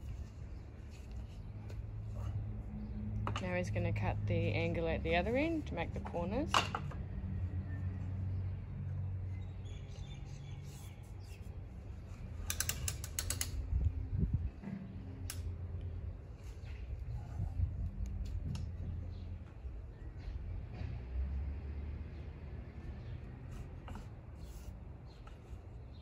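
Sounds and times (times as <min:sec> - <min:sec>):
low steady rumble: 0:00.0 - 0:09.4, 0:13.5 - 0:19.8
mitre saw clicks and rattles: 0:12.4 - 0:13.6.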